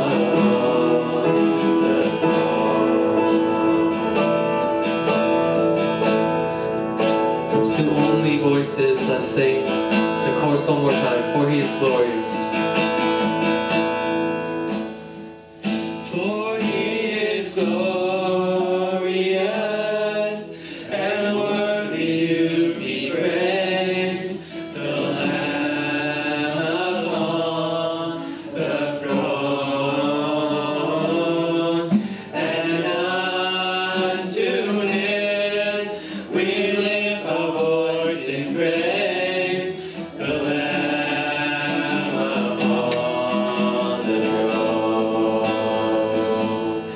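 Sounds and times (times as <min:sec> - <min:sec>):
man singing worship song: 0:00.0 - 0:03.6, 0:07.5 - 0:12.6, 0:16.0 - 0:46.9
acoustic guitar strumming: 0:00.0 - 0:46.9.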